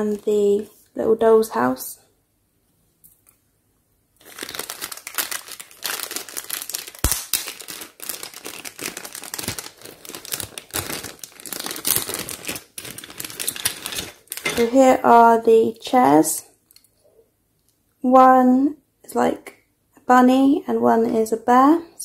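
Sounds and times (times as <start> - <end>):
plastic toy pieces rustling: 4.2 - 14.9
plastic bag crinkling: 4.2 - 15.0.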